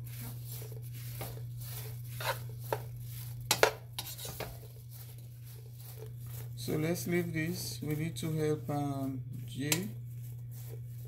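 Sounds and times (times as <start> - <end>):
steady low hum: 0.0 - 11.0
spoon scraping a metal pot: 0.1 - 6.1.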